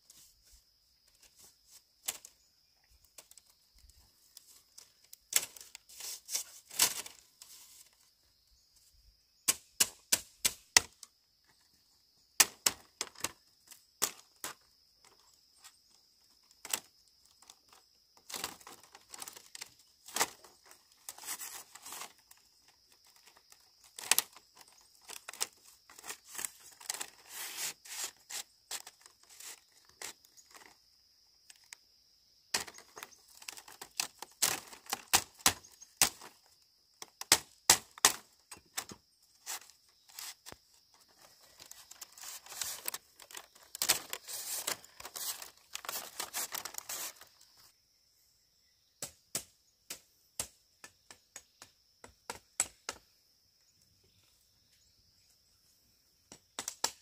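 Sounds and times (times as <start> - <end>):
bamboo cracking and tearing: 4.3 - 7.2, 16.6 - 30.8, 32.5 - 47.4
high insect drone: 10.9 - 49.0.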